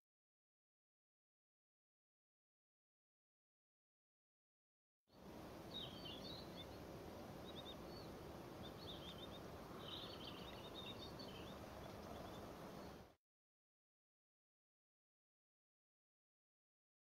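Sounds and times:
faint outdoor background noise: 5.1s - 13.2s
songbirds chirping: 5.1s - 13.2s.

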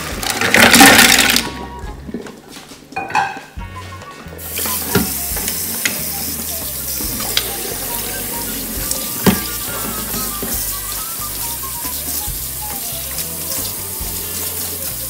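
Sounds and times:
tap water running: 4.4s - 15.0s.

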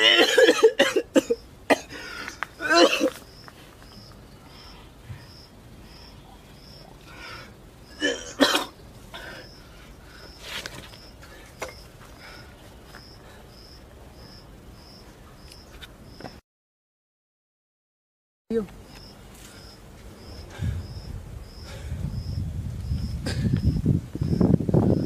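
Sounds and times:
man coughing: 0.0s - 2.0s, 2.6s - 3.2s, 8.0s - 8.8s.

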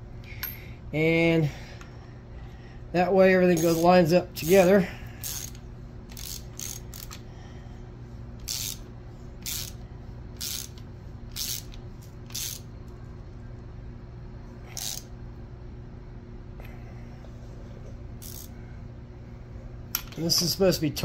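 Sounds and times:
low shop hum: 0.0s - 21.0s
socket ratchet clicking: 5.2s - 7.2s, 8.4s - 9.8s, 10.4s - 12.7s, 14.8s - 15.1s, 18.2s - 18.5s.

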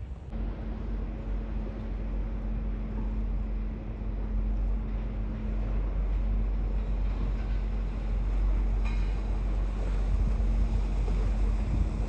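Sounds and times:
boat engines rumbling: 0.0s - 12.0s
wind on microphone: 4.5s - 12.0s.

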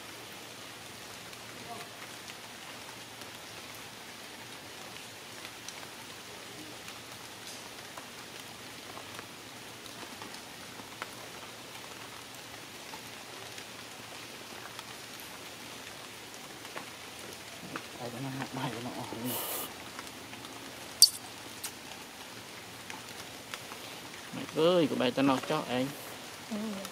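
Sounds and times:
sharp drips: 17.3s - 22.1s.

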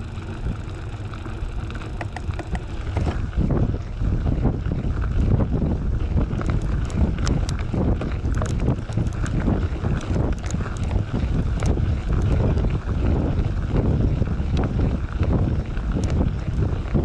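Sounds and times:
bike tire crunching over gravel: 0.0s - 17.0s
wind buffeting microphone: 0.0s - 17.0s
small stones clicking: 6.2s - 12.4s.

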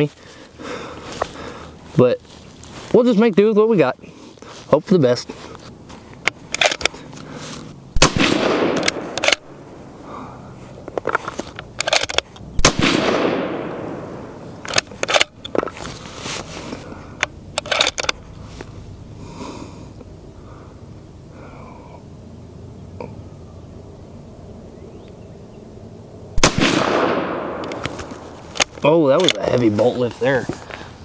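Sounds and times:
rifle bolt metallic clicks: 6.2s - 7.0s, 8.0s - 9.5s, 10.9s - 13.7s, 14.6s - 15.7s, 17.2s - 18.2s, 26.4s - 29.4s
suppressed rifle shots with echo: 8.0s - 9.6s, 12.6s - 15.3s, 26.4s - 28.3s.

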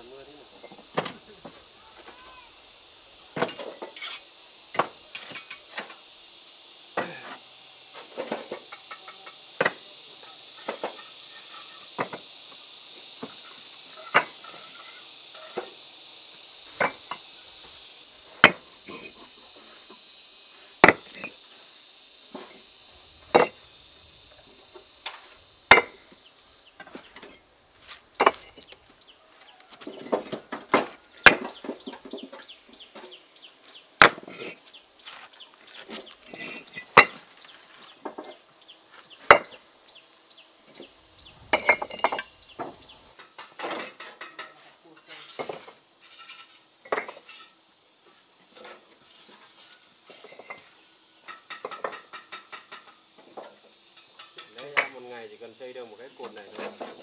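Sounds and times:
hand tools tapping materials: 8.0s - 12.3s, 23.3s - 23.6s, 24.5s - 26.2s, 26.8s - 29.0s, 34.0s - 39.6s, 41.5s - 47.6s, 48.5s - 55.0s.

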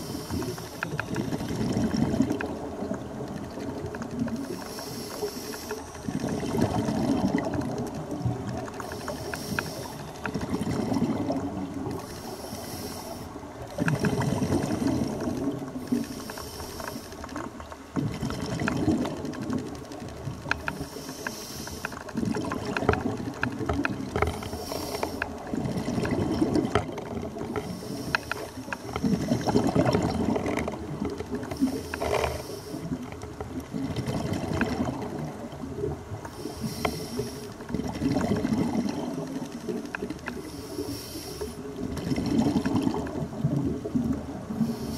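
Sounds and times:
regulator hissing inhale: 0.0s - 1.0s, 4.4s - 5.9s, 8.8s - 10.2s, 11.9s - 13.4s, 15.8s - 17.3s, 20.7s - 22.1s, 24.4s - 25.4s, 27.6s - 29.5s, 31.5s - 33.0s, 36.2s - 37.6s, 40.3s - 41.7s, 44.6s - 44.9s
exhaled bubbles: 0.0s - 4.6s, 5.9s - 8.9s, 9.8s - 12.1s, 13.6s - 16.2s, 17.9s - 20.3s, 22.1s - 24.5s, 25.3s - 27.8s, 28.6s - 36.2s, 37.6s - 40.9s, 41.6s - 44.9s
crackling clicks underwater: 0.0s - 44.9s.

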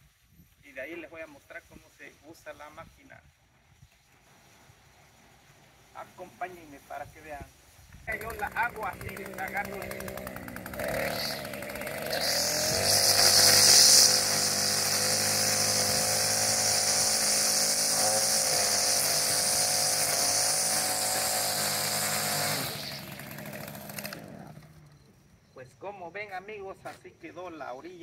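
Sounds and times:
string trimmer running: 8.1s - 25.1s.

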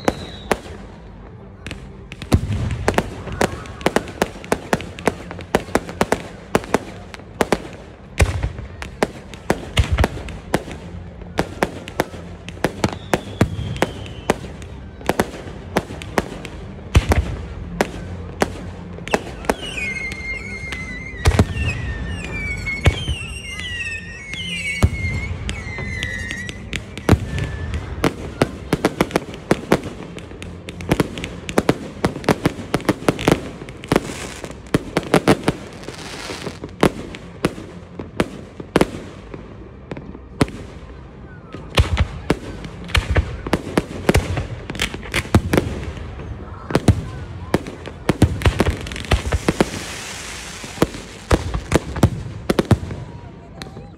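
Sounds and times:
deep fireworks booms: 0.0s - 41.0s
fireworks bangs and crackles: 0.0s - 53.9s
wavering high whistles: 19.1s - 28.0s.

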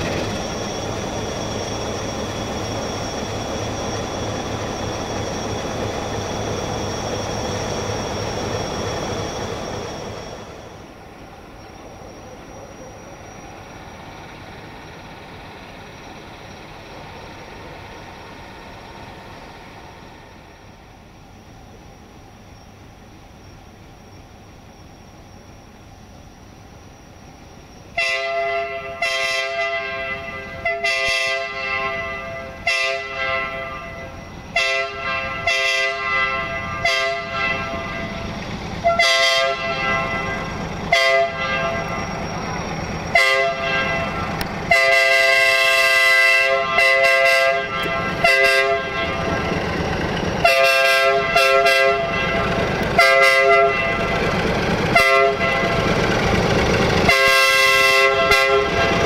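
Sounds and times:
diesel engine rumble: 0.0s - 27.6s, 36.3s - 45.9s, 46.5s - 59.0s
locomotive horn blasts: 28.0s - 42.1s, 43.1s - 49.5s, 50.4s - 54.2s, 54.9s - 55.9s, 57.0s - 59.0s.

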